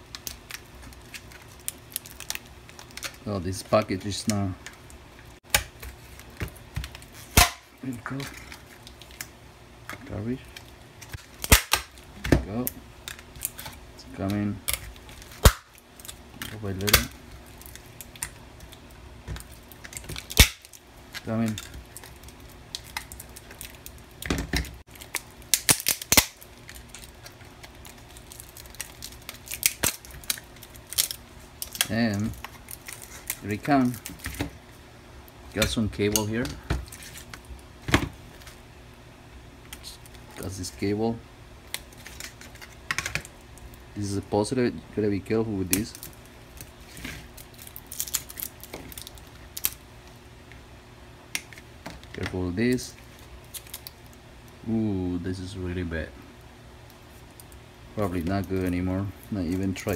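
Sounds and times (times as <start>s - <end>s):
plastic casing cracking and snapping: 0.1s - 3.2s, 10.5s - 13.8s, 14.6s - 34.6s, 45.7s - 49.8s, 53.2s - 54.2s.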